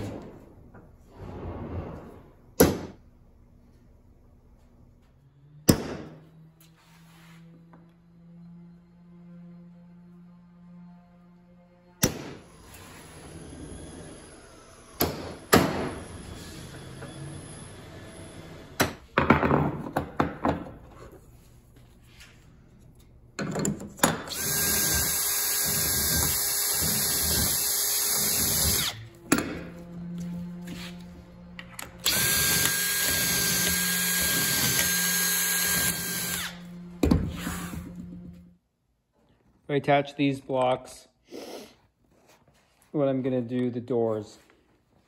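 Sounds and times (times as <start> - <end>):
cordless drill boring through metal: 24.3 - 29.1, 31.9 - 36.7.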